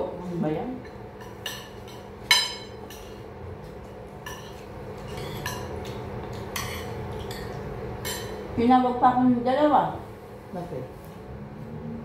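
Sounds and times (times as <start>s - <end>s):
cutlery clinking on plate: 4.3s - 8.4s.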